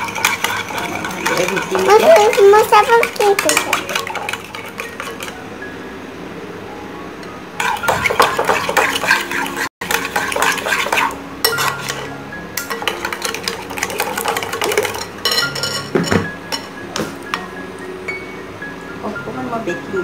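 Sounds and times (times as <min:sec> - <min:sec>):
metal spoon stirring in glass bowl: 0:00.0 - 0:05.4, 0:07.6 - 0:16.7.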